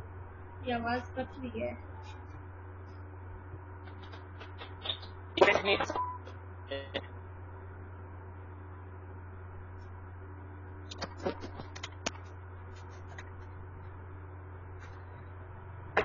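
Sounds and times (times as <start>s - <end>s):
audio breaking up clicks: 3.8s - 5.6s, 10.9s - 13.5s
microphone hum: 10.8s - 13.4s.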